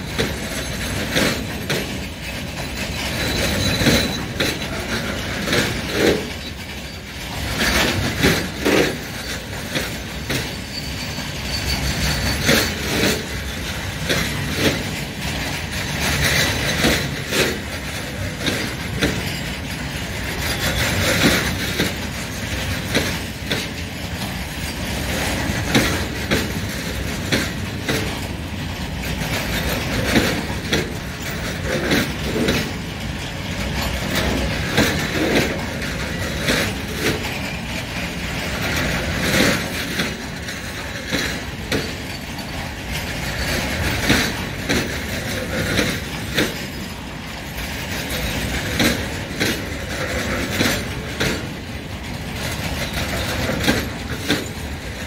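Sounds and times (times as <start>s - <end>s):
train wheels rumbling on rails: 0.0s - 55.0s
wagons clanking and knocking: 0.0s - 55.0s.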